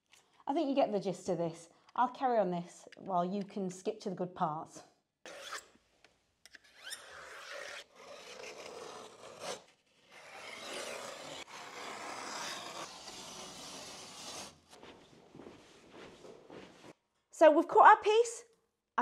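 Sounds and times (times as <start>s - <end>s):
utility knife scoring plasterboard: 6.6s - 17.0s.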